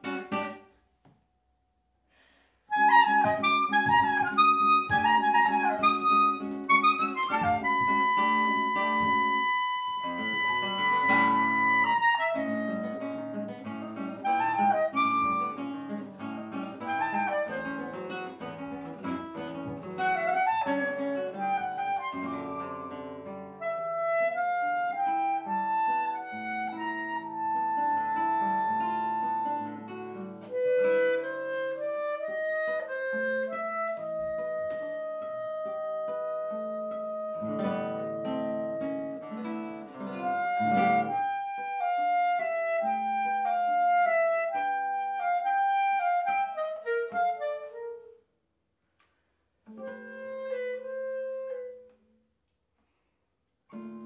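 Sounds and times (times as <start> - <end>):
clarinet melody: 0.0 - 0.6, 2.7 - 48.4, 49.6 - 52.4, 53.7 - 54.0
plucked classical guitar: 0.0 - 0.8, 2.7 - 48.2, 49.6 - 52.2, 53.7 - 54.0.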